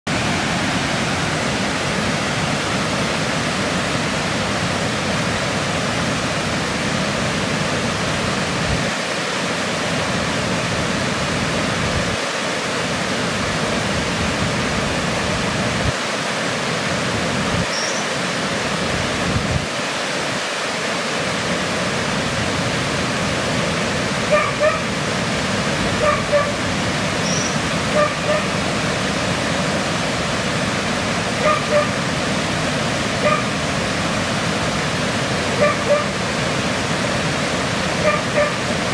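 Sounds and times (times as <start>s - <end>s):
steady rushing noise: 0.1s - 38.9s
short bird calls: 17.7s - 18.1s, 27.2s - 27.6s.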